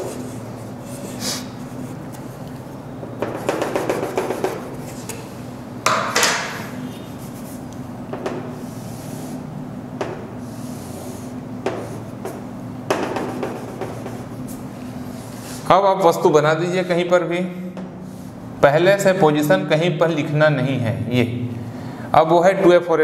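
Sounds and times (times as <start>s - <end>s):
knocks against chalkboard: 3.1s - 4.7s, 5.8s - 6.7s, 8.1s - 8.5s, 10.0s - 10.3s, 11.6s - 14.3s
chalk scratching on chalkboard: 3.2s - 5.1s, 6.8s - 7.8s, 8.5s - 9.5s, 10.4s - 12.4s, 13.1s - 15.6s.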